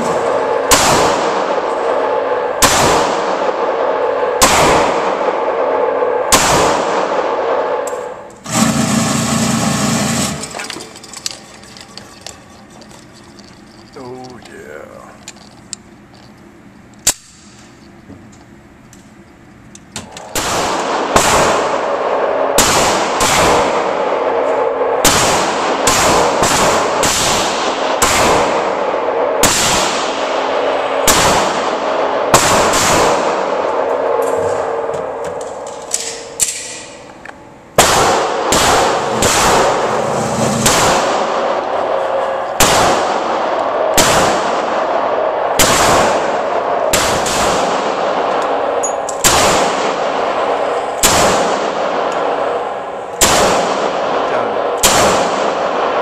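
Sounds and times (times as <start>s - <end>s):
echoing handgun shots: 0.0s - 7.8s, 20.3s - 36.9s, 37.7s - 56.0s.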